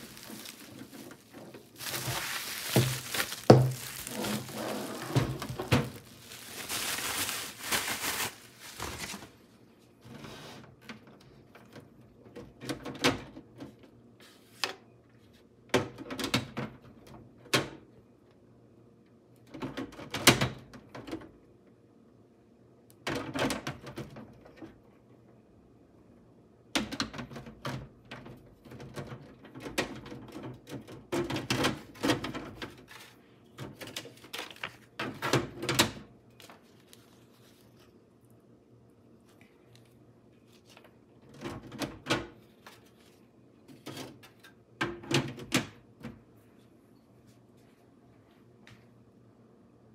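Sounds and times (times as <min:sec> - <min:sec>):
packaging rustling: 0:00.0 - 0:09.4.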